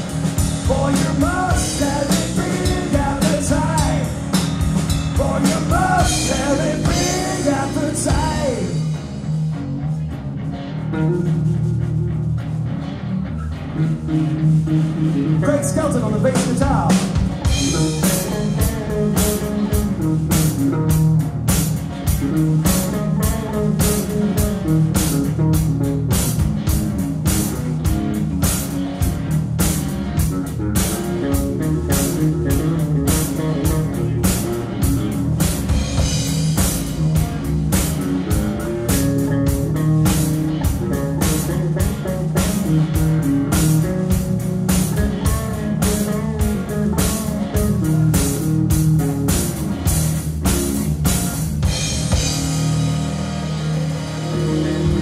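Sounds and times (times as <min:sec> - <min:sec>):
drum kit beat: 0:00.0 - 0:12.8, 0:13.7 - 0:55.0
electric bass: 0:00.0 - 0:55.0
electric guitar: 0:00.0 - 0:55.0.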